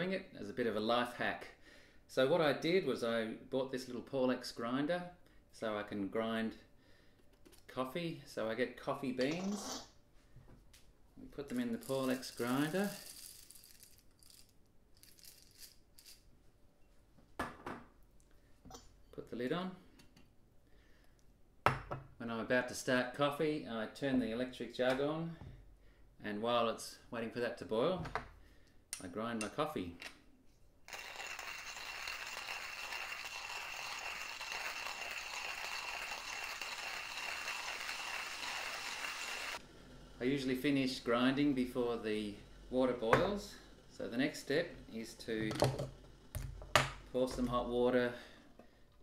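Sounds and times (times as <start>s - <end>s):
coffee beans rattling: 11.5s - 16.2s, 30.9s - 47.7s.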